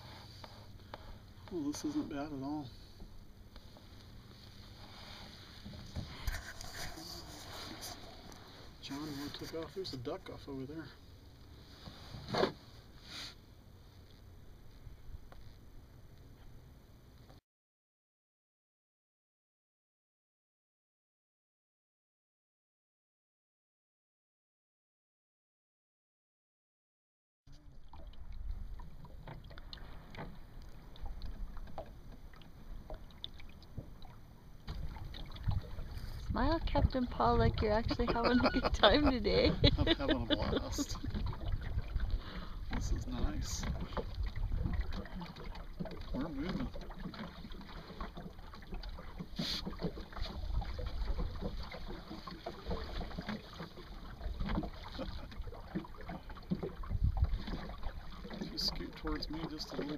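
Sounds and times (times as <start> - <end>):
water lapping against hull: 0.0 - 17.3, 27.5 - 59.9
brief hiss: 12.0 - 13.4
wind rumble on microphone: 34.7 - 45.1, 56.8 - 57.8.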